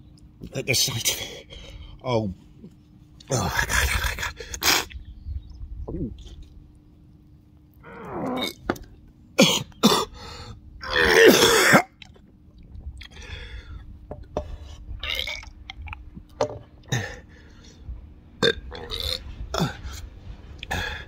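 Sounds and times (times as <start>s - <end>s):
man gagging and retching: 10.8s - 12.2s, 15.0s - 16.0s.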